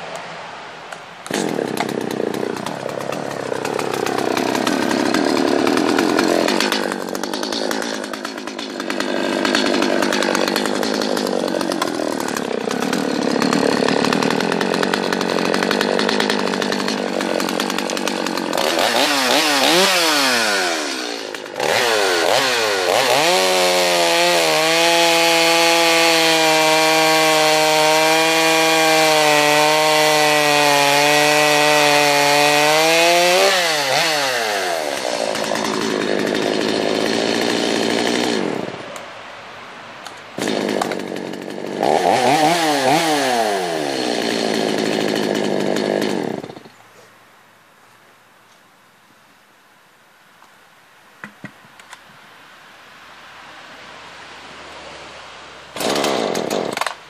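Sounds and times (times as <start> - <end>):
chain cutting through log: 1.3 - 38.8, 40.4 - 46.8, 55.8 - 57.0
chainsaw revving: 1.3 - 39.0, 40.4 - 46.8, 55.7 - 57.0.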